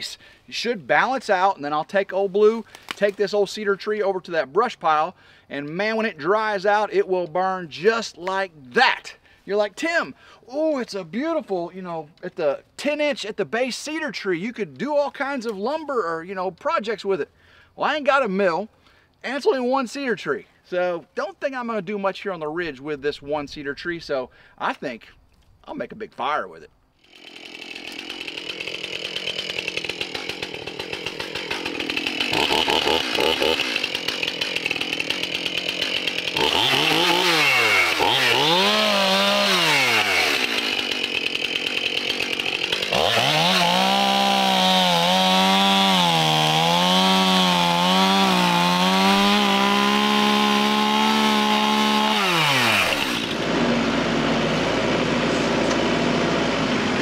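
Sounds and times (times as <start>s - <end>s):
chainsaw cutting wood: 2.6s - 3.3s, 27.0s - 57.0s
tractor engine running: 53.0s - 57.0s.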